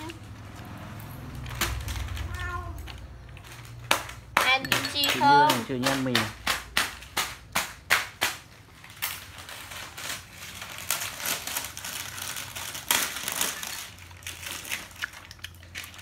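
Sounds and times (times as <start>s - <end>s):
plastic bag crinkling: 8.8s - 16.0s.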